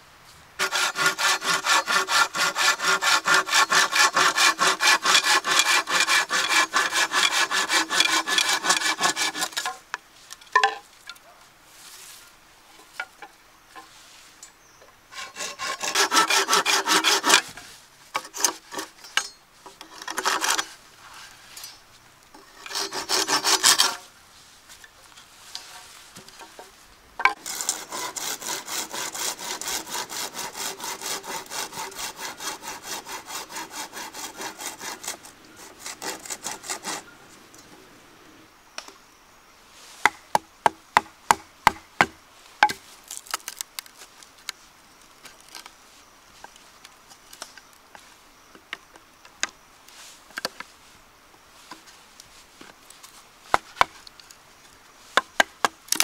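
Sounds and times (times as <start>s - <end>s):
bamboo being sawn by hand: 0.6s - 9.8s, 15.1s - 21.6s, 22.4s - 24.1s, 24.7s - 37.1s, 39.8s - 44.3s.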